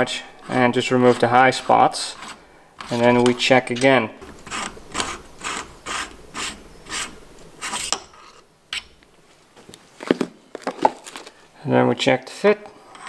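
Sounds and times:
hand reamer rasping scrape: 0.0s - 8.9s, 12.8s - 13.0s.

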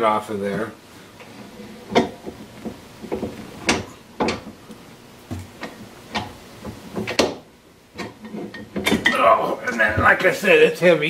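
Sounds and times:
sharp metal clunks: 3.1s - 4.6s.

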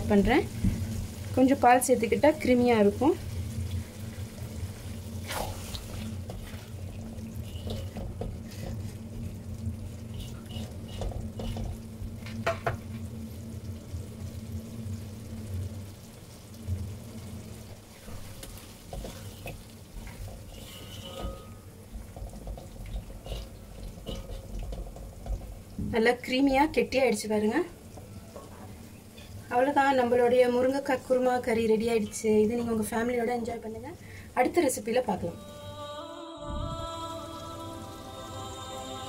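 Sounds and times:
spatula scraping a pan: 4.7s - 9.0s, 10.0s - 11.8s, 18.0s - 25.5s
steady low hum: 35.3s - 39.0s.

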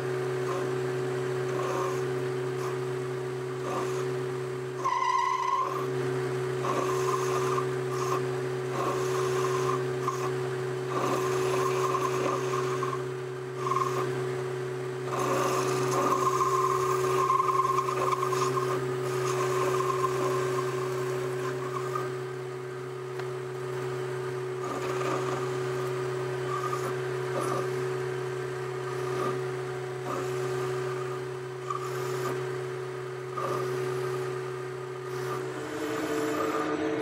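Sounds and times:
cutting tool whine: 0.0s - 37.0s
lathe motor hum: 0.0s - 37.0s
ringing squeal: 4.8s - 5.9s, 15.1s - 23.0s, 24.6s - 37.0s.

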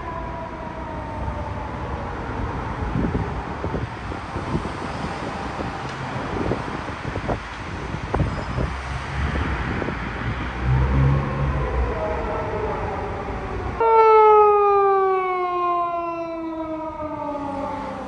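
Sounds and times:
police siren wailing: 0.0s - 3.8s, 10.6s - 18.0s
street traffic: 0.0s - 18.0s.

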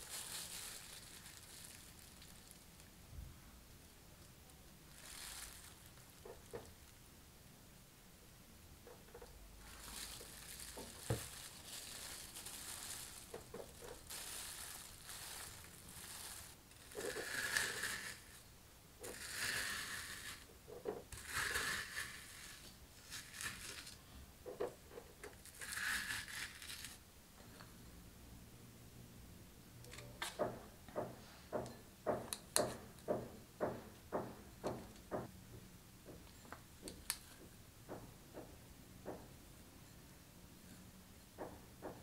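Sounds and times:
sharp knocks: 30.4s - 35.3s.

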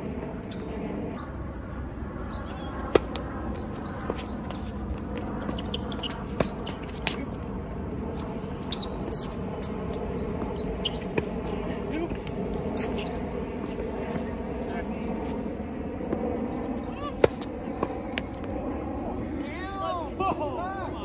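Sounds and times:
balls bouncing on hard court: 2.4s - 7.5s, 8.2s - 14.2s, 16.0s - 18.8s
tennis balls struck by rackets: 2.6s - 4.7s, 5.6s - 7.3s, 10.3s - 11.5s, 17.1s - 18.5s.

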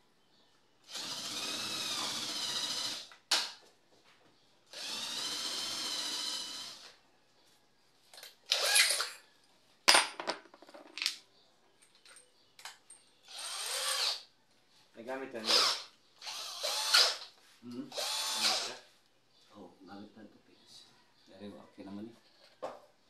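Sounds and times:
drill boring into wood: 0.8s - 3.1s, 4.7s - 6.9s, 13.3s - 14.3s, 15.4s - 17.2s, 17.9s - 18.8s.

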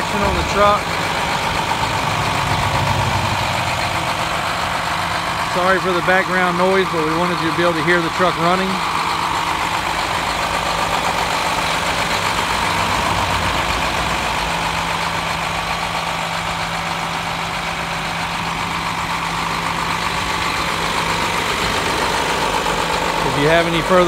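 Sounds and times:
diesel truck engine idling: 0.0s - 24.0s.

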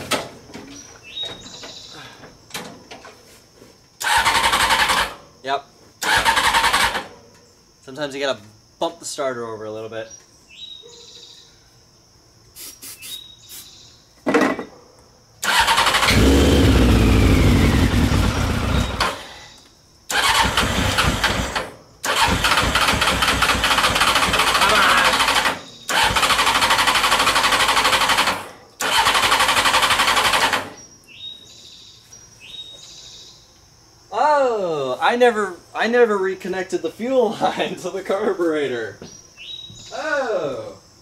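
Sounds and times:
starter motor cranking engine: 4.0s - 5.2s, 6.0s - 7.1s, 15.4s - 19.3s, 20.1s - 30.8s.

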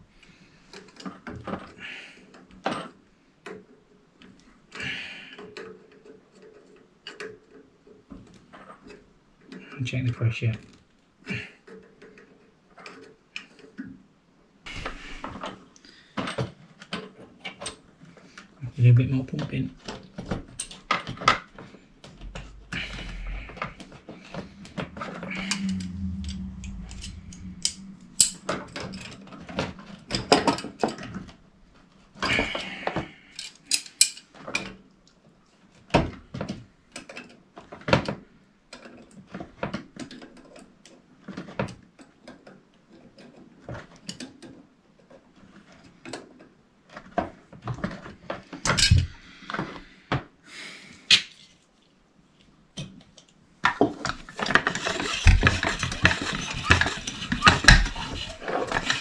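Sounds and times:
low steady hum: 22.0s - 29.4s.

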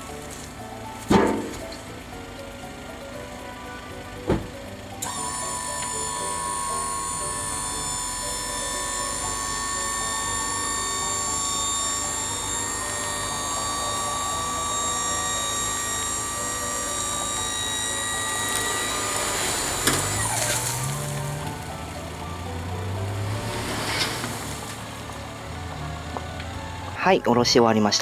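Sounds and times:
hydraulic tipping gear whining: 0.0s - 27.0s
mulch sliding off truck bed: 0.3s - 1.9s, 5.0s - 21.7s, 22.8s - 25.1s.

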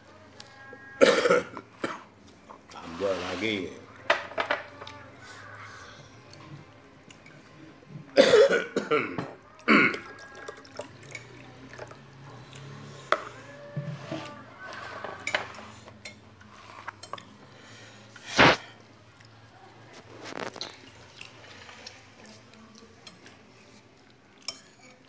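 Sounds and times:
man coughing: 1.0s - 2.0s, 8.2s - 10.0s.

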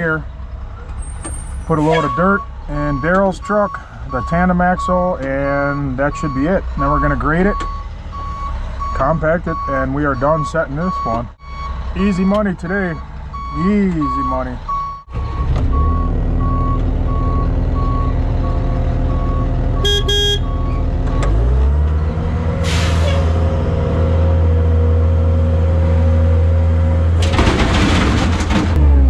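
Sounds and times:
diesel engine running: 0.0s - 29.0s
short horn toot: 1.7s - 2.2s, 19.8s - 20.6s
backup alarm beeping: 1.9s - 4.5s, 7.5s - 21.4s.

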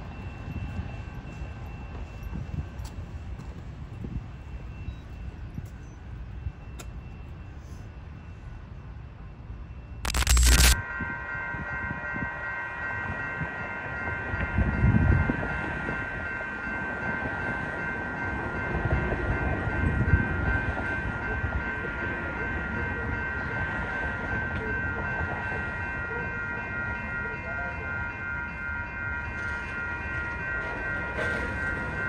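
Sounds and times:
high ringing tones: 10.0s - 32.0s
train rumble: 10.8s - 32.0s.

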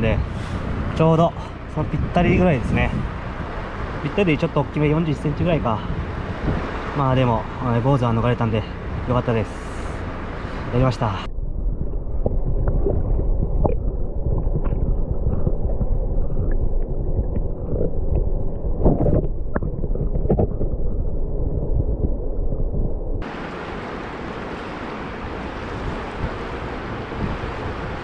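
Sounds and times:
muffled underwater river rush: 0.0s - 28.0s
bubbly knock: 11.8s - 20.8s
bubbly clicks: 11.8s - 22.2s
river running over stones: 23.2s - 28.0s.

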